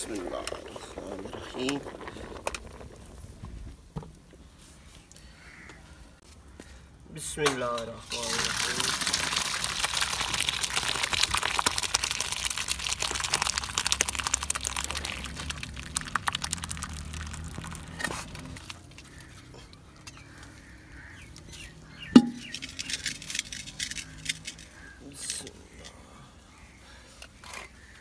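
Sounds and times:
water pouring into colander: 8.1 - 18.7
sharp knock with ring: 22.2 - 22.5.

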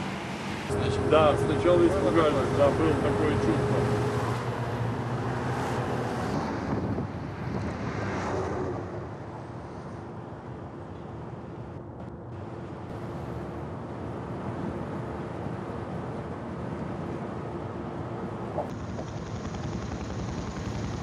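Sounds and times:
engine and tyre noise: 0.0 - 21.0
heavy trucks driving: 0.0 - 21.0.

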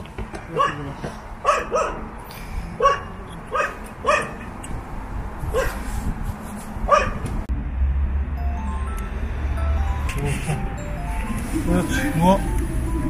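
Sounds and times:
dog barking: 0.5 - 2.1, 2.8 - 4.5, 5.5 - 5.8, 6.9 - 7.2.

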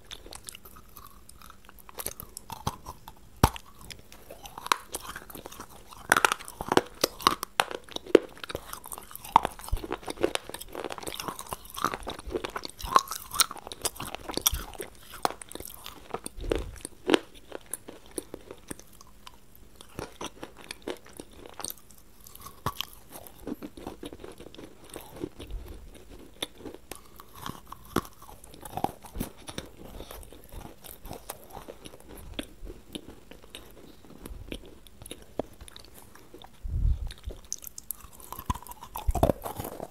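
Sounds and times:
person chewing with crunches: 0.0 - 39.9.

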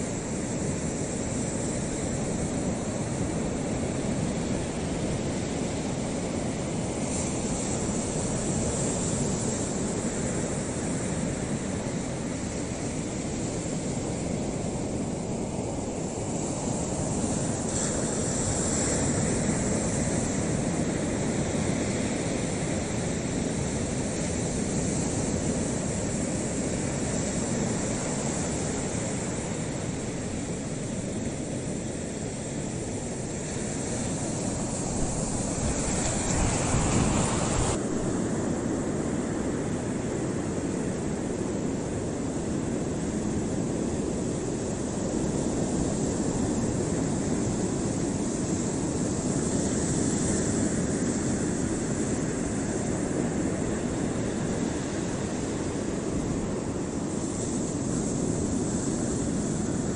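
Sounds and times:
waves lapping: 26.9 - 59.9
wind rushing: 34.8 - 38.2.

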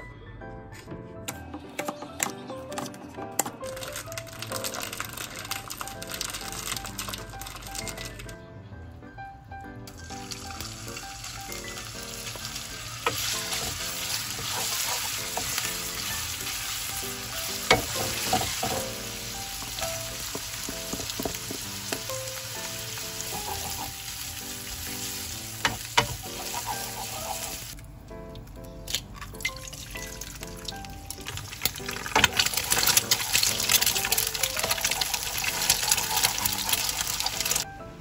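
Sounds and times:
meat sizzling in a wok: 10.0 - 27.8, 31.6 - 37.6.

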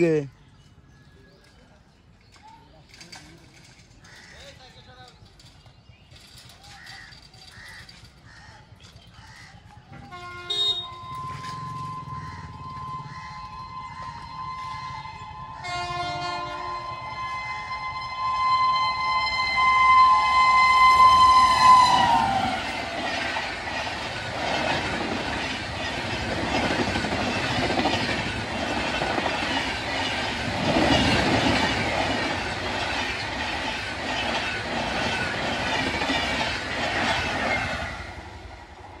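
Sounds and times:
train wheels clattering over rail joints: 2.7 - 12.6, 21.4 - 38.2
locomotive horn: 10.0 - 22.8.

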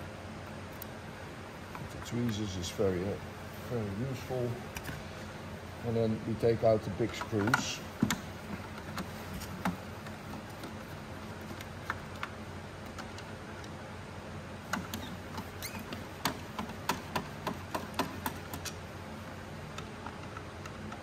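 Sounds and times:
screws knocking on casing: 7.2 - 13.3, 14.7 - 18.8
screwdriver clicks and taps: 15.9 - 18.8.

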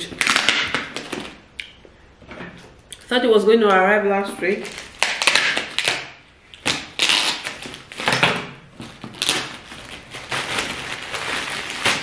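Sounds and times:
plastic crinkling: 4.4 - 12.0.

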